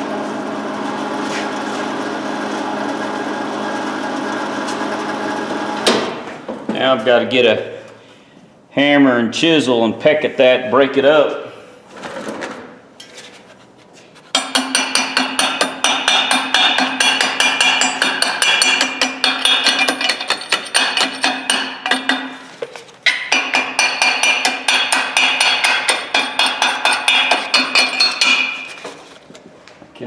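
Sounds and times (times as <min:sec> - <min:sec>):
hammer striking metal chisel: 0:14.3 - 0:28.8.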